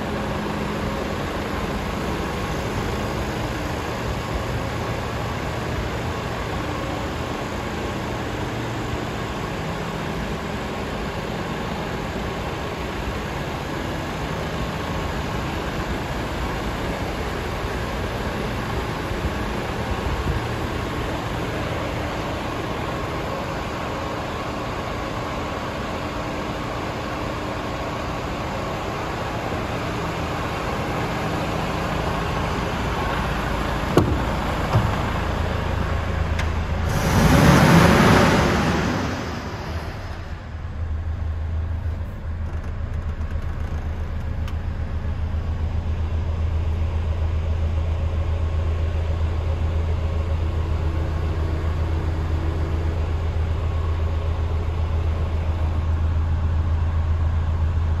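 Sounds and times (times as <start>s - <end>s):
diesel truck engine idling: 0.0s - 58.0s
loud rushing air noise: 29.0s - 40.9s.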